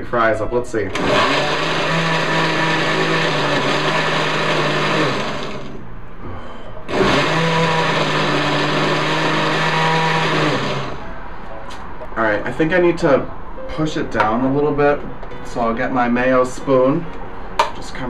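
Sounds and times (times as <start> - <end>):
blender motor chopping: 0.9 - 5.8, 6.9 - 11.0.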